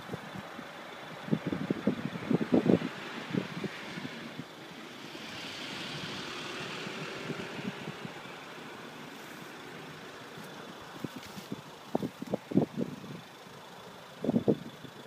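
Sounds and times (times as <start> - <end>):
vehicle passing: 1.6 - 11.5.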